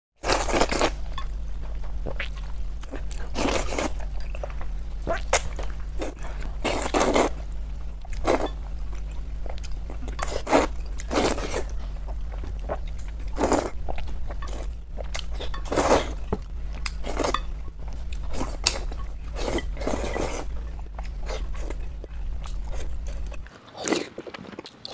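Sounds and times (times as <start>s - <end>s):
chewing: 0.2s - 24.9s
steady low hum: 0.2s - 24.9s
noodles slurping: 6.0s - 7.4s.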